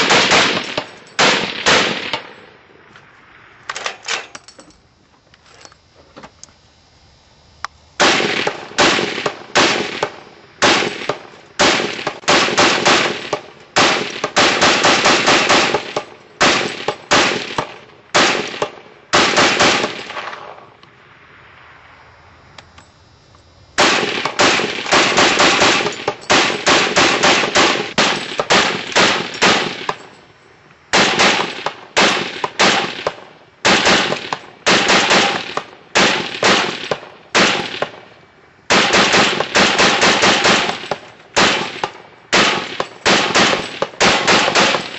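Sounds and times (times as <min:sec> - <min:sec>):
machine gun single shots: 0:00.0 - 0:02.5, 0:08.0 - 0:20.6, 0:23.8 - 0:30.1, 0:30.9 - 0:38.1, 0:38.7 - 0:44.9.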